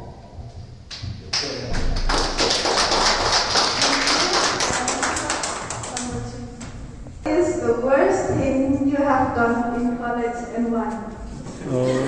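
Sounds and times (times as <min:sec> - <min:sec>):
audience applauding: 0:01.3 - 0:06.1.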